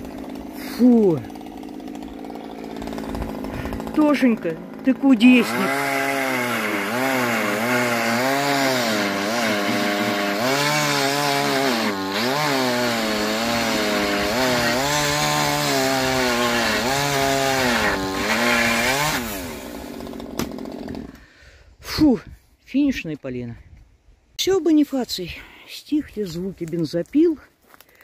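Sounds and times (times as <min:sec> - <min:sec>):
chainsaw cutting wood: 0:00.0 - 0:21.3.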